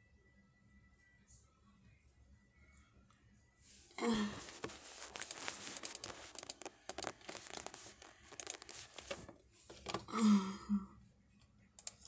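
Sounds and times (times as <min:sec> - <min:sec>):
crinkly rustling: 0:04.4 - 0:09.3
scattered clicks: 0:04.6 - 0:09.2, 0:11.8 - 0:12.0.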